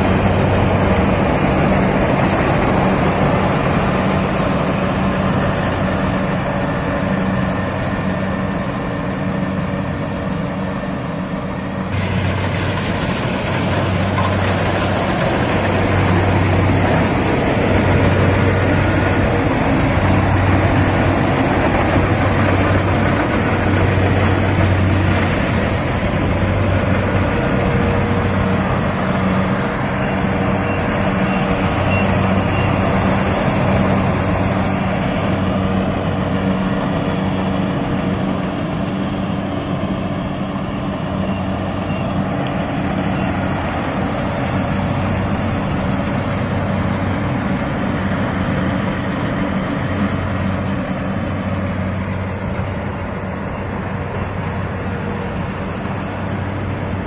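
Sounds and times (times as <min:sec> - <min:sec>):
diesel engine hum: 0:00.0 - 0:57.0
threshing machinery whirring: 0:11.9 - 0:36.2.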